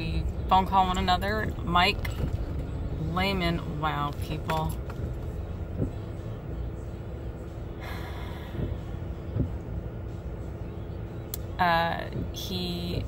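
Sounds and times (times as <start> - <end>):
car engine and road rumble: 0.0 - 13.0
person breathing: 7.8 - 8.9.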